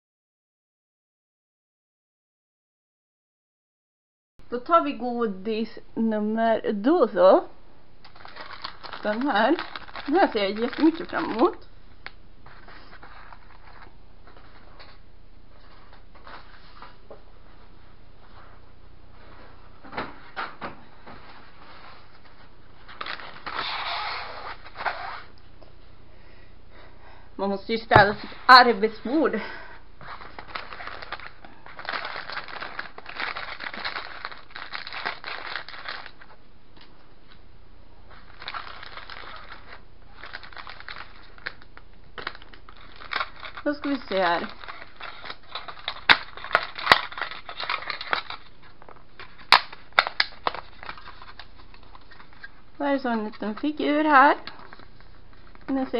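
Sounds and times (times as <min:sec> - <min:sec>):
low background hum: 0:04.4 - 0:55.9
scissors cutting plastic: 0:08.0 - 0:11.6, 0:30.0 - 0:36.3, 0:38.3 - 0:52.6
plastic packet crinkling: 0:08.0 - 0:14.6, 0:22.8 - 0:24.8, 0:30.0 - 0:36.4, 0:38.1 - 0:52.6
rustling of small items on table: 0:08.1 - 0:25.4, 0:27.8 - 0:37.4, 0:38.0 - 0:55.9.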